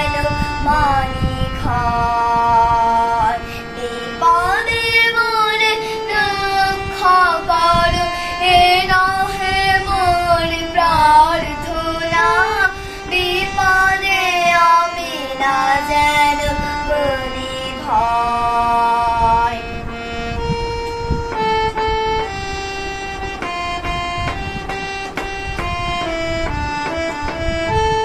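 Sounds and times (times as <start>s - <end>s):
girl singing: 0.0s - 19.9s
harmonium: 0.0s - 28.0s.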